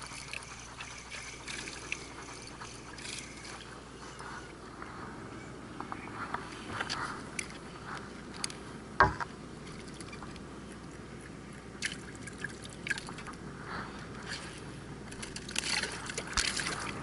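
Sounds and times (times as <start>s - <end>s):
water dripping: 9.6s - 13.4s.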